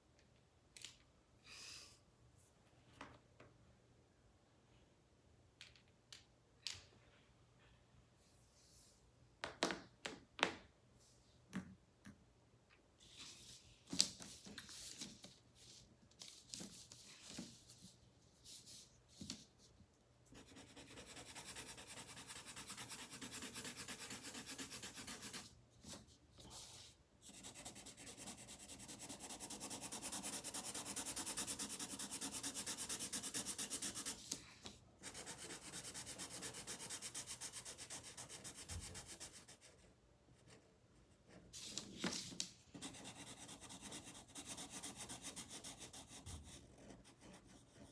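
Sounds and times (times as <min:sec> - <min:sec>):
marker scribbling on paper: 0:20.3 - 0:25.5, 0:26.5 - 0:34.4, 0:35.0 - 0:39.6.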